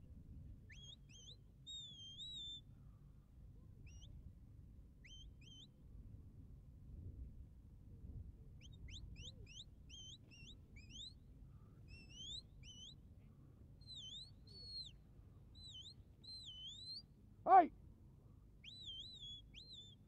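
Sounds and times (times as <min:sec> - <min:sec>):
whistle commands: 0:00.7 - 0:02.6, 0:12.0 - 0:12.9, 0:13.9 - 0:14.9, 0:15.6 - 0:17.0, 0:18.6 - 0:20.0.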